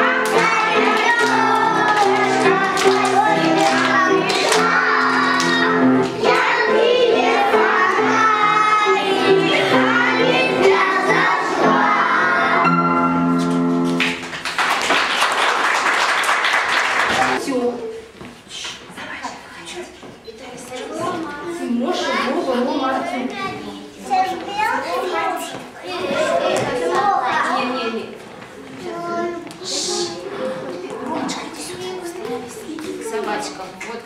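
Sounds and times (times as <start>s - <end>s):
children singing together: 0.0s - 13.2s
instrumental accompaniment: 0.0s - 14.6s
people clapping: 0.2s - 6.6s, 13.8s - 17.4s.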